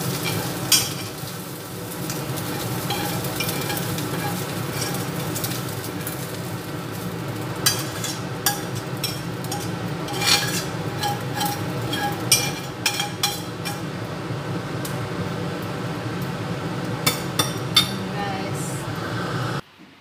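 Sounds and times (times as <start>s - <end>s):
utensil scraping a frying pan: 0.0s - 14.0s.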